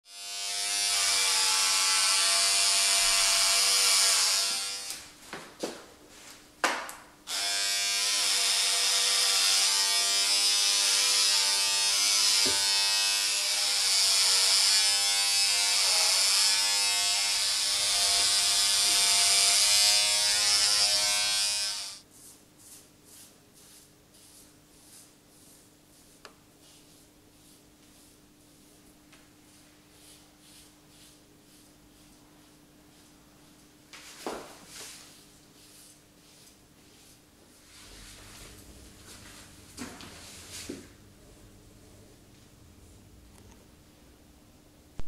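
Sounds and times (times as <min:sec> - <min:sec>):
hair clippers buzzing: 0:00.1 - 0:05.0, 0:07.3 - 0:22.0.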